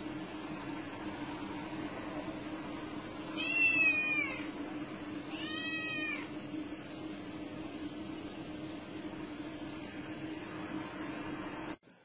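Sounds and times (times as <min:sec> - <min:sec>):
steady low hum: 0:00.0 - 0:12.0
cat meowing: 0:03.4 - 0:04.5, 0:05.3 - 0:06.3.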